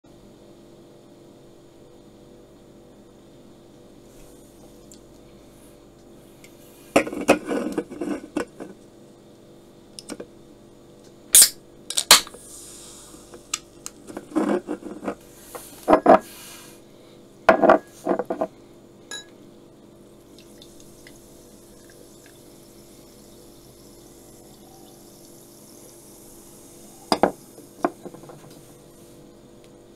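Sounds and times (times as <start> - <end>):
gas hissing from can: 12.3 - 13.6
soda fizzing in glass: 20.2 - 27.9.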